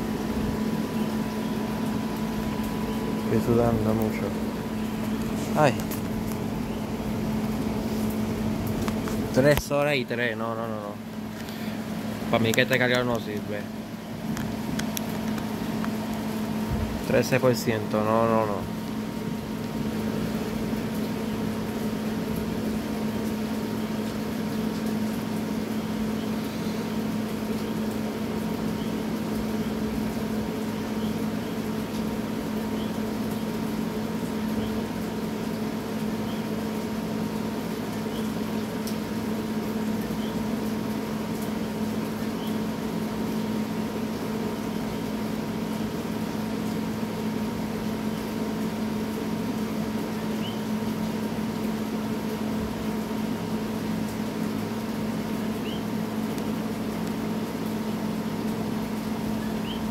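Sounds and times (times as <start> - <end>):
steady mechanical hum: 0.0 - 59.9.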